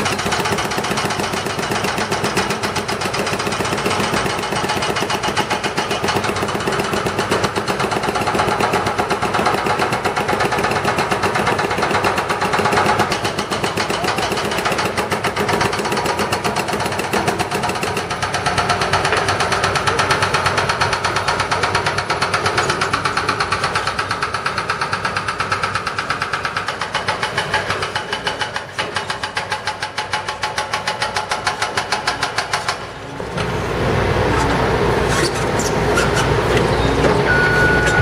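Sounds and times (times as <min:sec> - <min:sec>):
hydraulic breaker hammering concrete: 0:00.0 - 0:33.0
diesel engines running: 0:16.0 - 0:26.2, 0:32.7 - 0:38.0.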